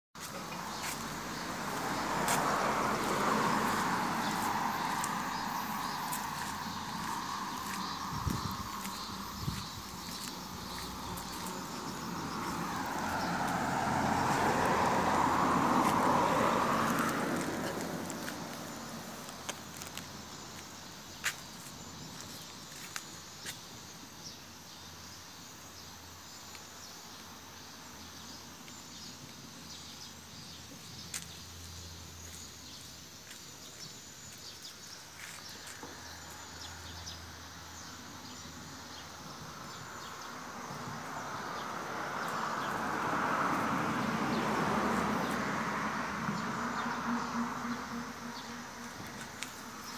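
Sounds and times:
car passing: 0.2s - 22.1s, 34.9s - 49.9s
insects chirping: 0.2s - 49.9s.

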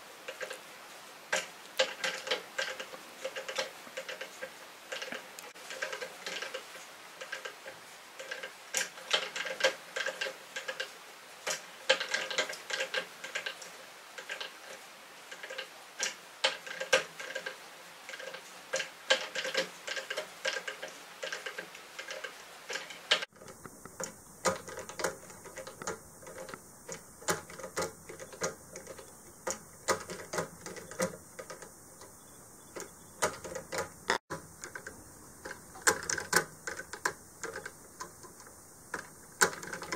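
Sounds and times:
mechanism clicking and clacking: 0.3s - 0.6s, 1.3s - 39.9s
faint high whine: 23.3s - 39.9s.

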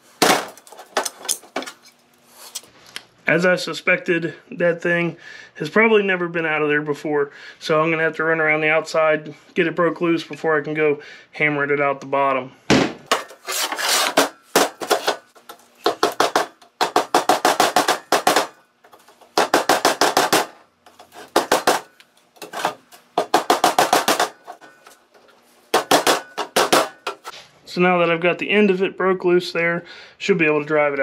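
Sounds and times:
hammer striking screwdriver: 15.8s - 18.6s, 19.4s - 24.7s, 25.8s - 27.3s.

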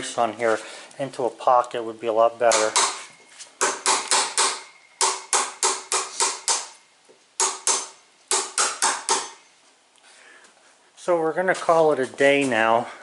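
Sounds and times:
hammer striking wood chisel: 2.5s - 6.8s, 7.4s - 9.5s.

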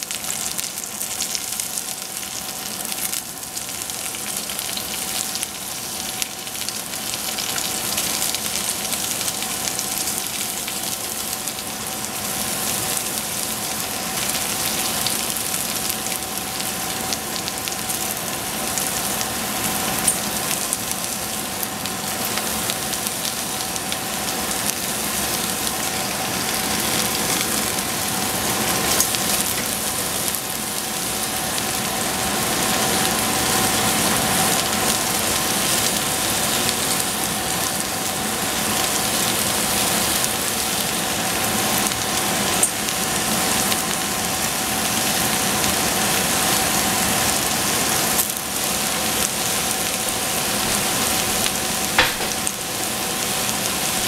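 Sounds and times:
food sizzling in hot oil: 0.0s - 54.0s
mechanical hum: 0.0s - 54.0s
oil popping: 51.3s - 52.8s.

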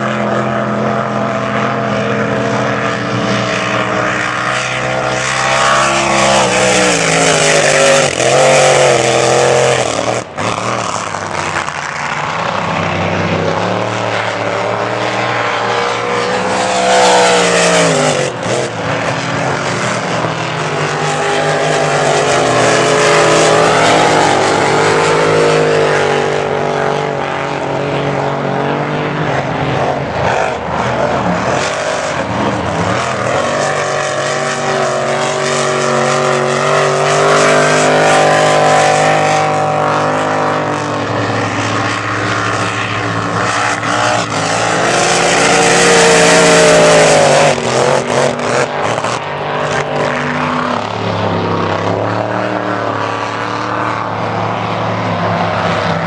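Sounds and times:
race boat engines passing: 0.0s - 56.0s.

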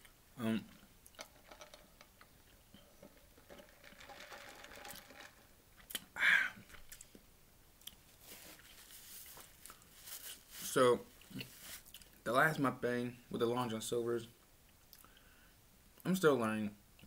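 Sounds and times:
loud exhaled vocal sound: 6.2s - 6.6s.

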